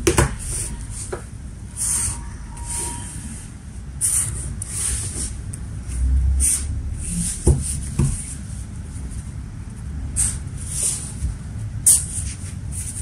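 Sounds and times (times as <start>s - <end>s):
marker scratching on paper: 0.3s - 1.2s, 4.0s - 5.4s, 6.4s - 9.1s, 10.2s - 13.0s.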